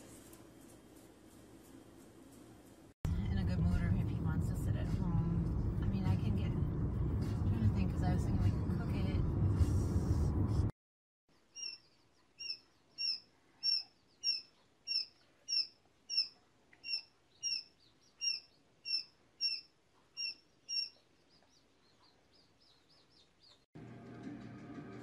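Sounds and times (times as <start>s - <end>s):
chicks peeping: 20.2s - 23.6s.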